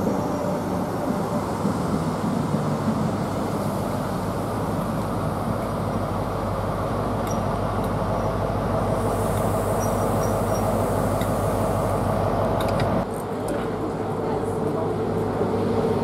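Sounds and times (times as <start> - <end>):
train coaches rumbling: 0.0 - 16.0
diesel engine drone: 2.7 - 13.1.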